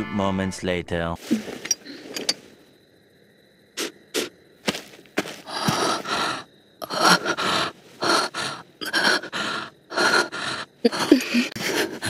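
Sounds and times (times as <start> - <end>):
heavy breathing: 5.2 - 12.0.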